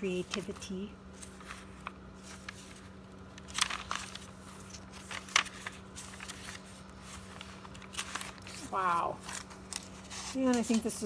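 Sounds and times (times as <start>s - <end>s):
paper pages rustling: 0.0s - 11.0s.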